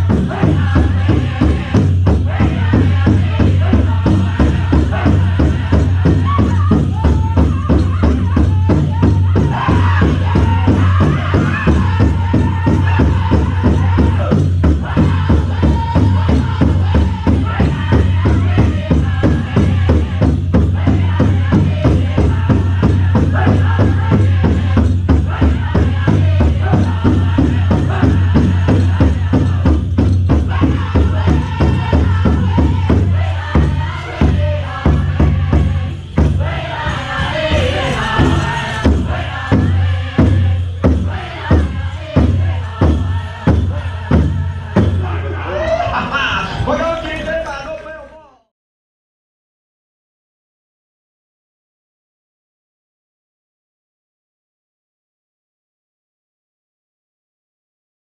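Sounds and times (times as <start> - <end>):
big drum steady fast beat: 0.0 - 45.4
high-pitched group singing: 0.0 - 47.4.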